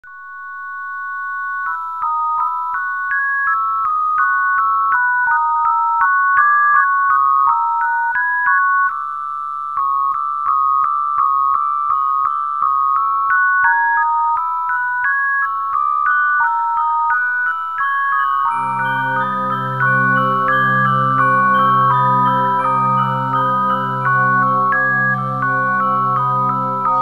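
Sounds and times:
electronic keyboard tune: 0.1s - 9.0s, 9.7s - 27.0s
held keyboard chord: 9.7s - 27.0s.

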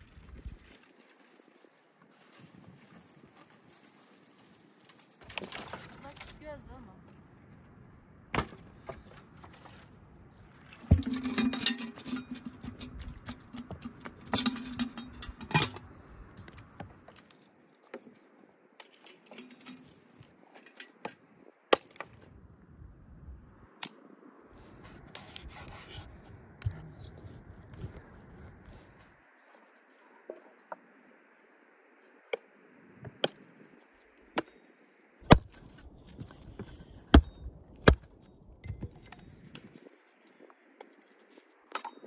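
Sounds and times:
branches dragged and rattling: 0.0s - 7.0s, 8.4s - 17.5s, 18.1s - 21.5s, 24.6s - 29.4s
hatchet chopping branches: 8.3s - 9.0s, 21.0s - 22.2s, 35.2s - 38.1s.

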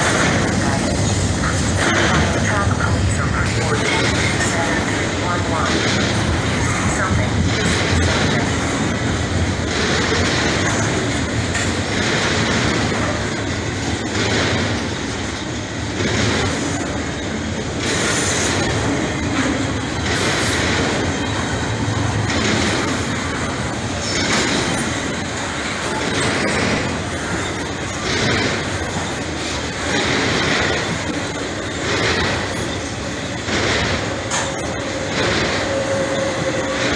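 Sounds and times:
train wheels clattering on rails: 0.0s - 36.9s.

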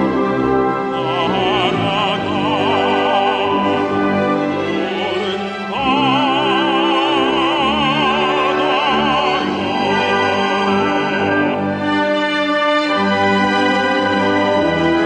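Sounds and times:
tenor singing operatically: 0.0s - 12.0s
orchestral accompaniment: 0.0s - 15.0s.

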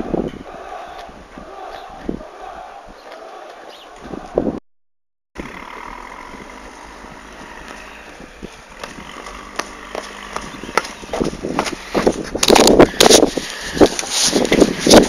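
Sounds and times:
footsteps approaching: 7.2s - 15.0s.

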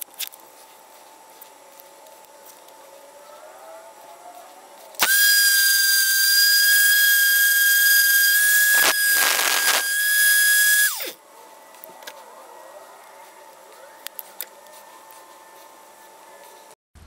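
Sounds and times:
orbital sander motor whine: 4.9s - 11.2s.

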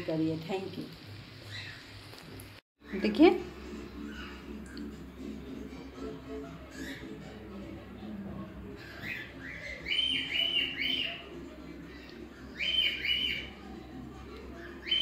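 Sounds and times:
bird chirping: 2.8s - 5.6s, 8.8s - 13.6s, 14.6s - 15.0s.

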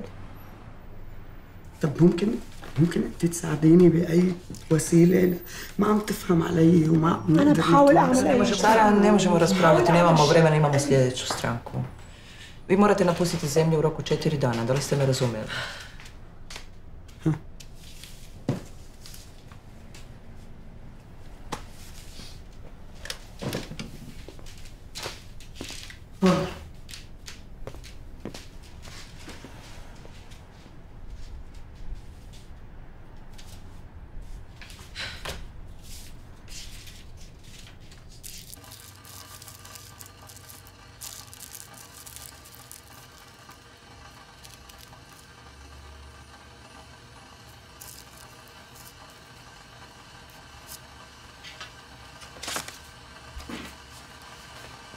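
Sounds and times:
rolling paper being rolled: 35.8s - 54.9s
paper rustling and crinkling: 36.0s - 43.6s, 52.2s - 52.8s.

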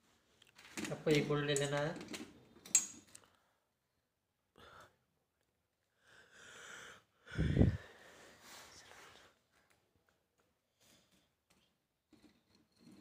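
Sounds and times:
soft breath-like hiss: 6.3s - 9.4s.

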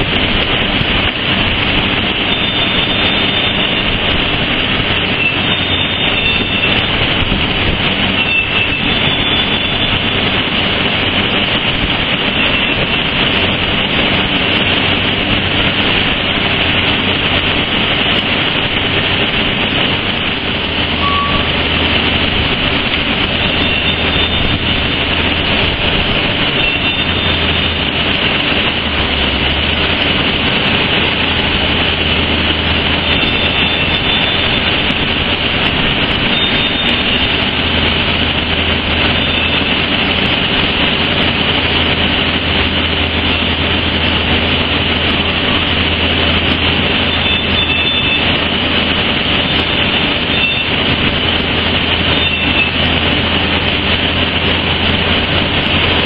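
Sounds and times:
industrial roar: 0.0s - 56.0s
low hum: 10.4s - 47.4s
faint high whistling tones: 21.0s - 21.6s.

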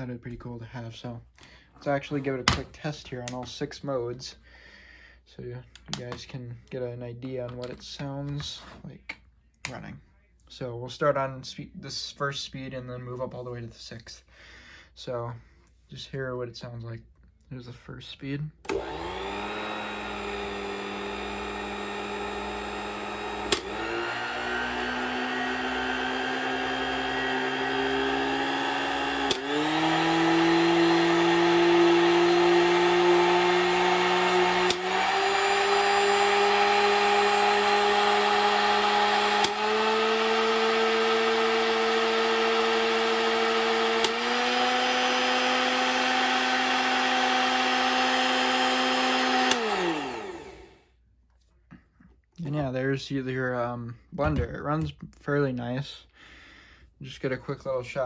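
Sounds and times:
blender motor whine: 18.6s - 50.9s
blender button click: 23.2s - 24.2s, 25.1s - 32.0s, 33.4s - 35.7s, 38.8s - 50.5s.

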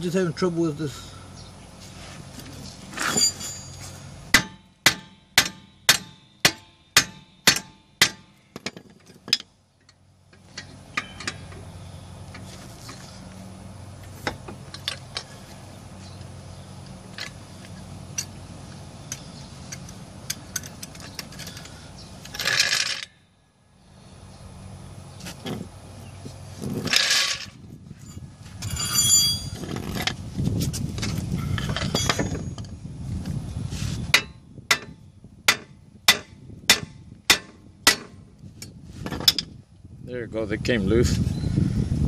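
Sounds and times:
tools clinking on metal: 3.0s - 6.7s, 7.4s - 11.6s, 19.1s - 23.1s, 31.6s - 32.7s
hammer striking metal: 3.5s - 8.4s, 34.2s - 38.2s.

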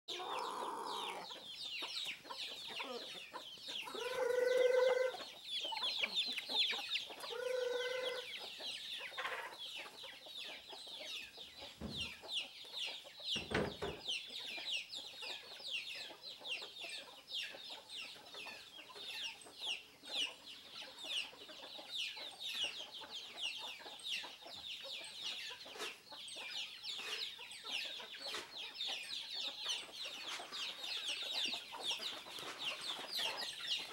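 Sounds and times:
chickens peeping: 0.1s - 33.9s
chicken calling loudly: 3.9s - 5.2s, 7.3s - 8.3s.

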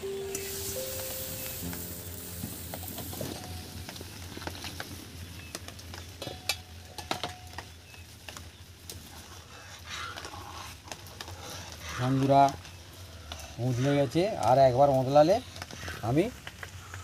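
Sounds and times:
milk heating hiss: 0.0s - 4.8s.

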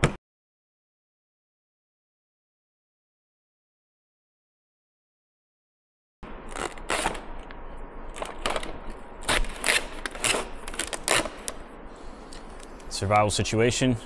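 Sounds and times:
duct tape ripping off metal tin: 6.5s - 7.2s, 9.2s - 11.6s.

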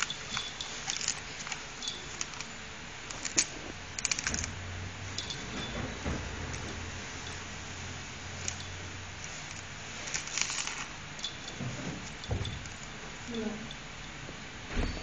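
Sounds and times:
dog gnawing coconut husk: 0.0s - 4.6s.

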